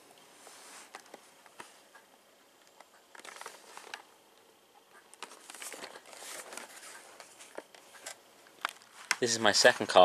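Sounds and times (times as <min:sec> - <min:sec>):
cardboard box rustling: 0:05.2 - 0:08.2.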